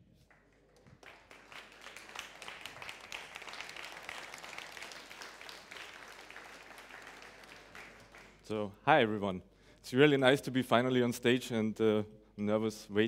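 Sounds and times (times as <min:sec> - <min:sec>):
audience applauding: 0:00.3 - 0:08.5.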